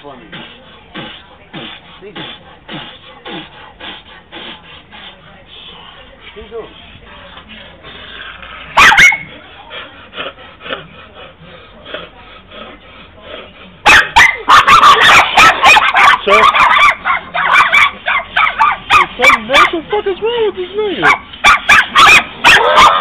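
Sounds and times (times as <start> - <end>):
small dog barking: 8.8 - 9.3, 13.8 - 19.7, 21.0 - 23.0.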